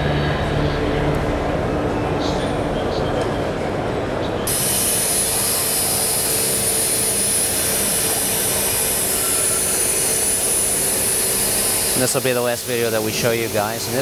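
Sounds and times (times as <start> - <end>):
end mill cutting steel with whine: 4.5 - 14.0.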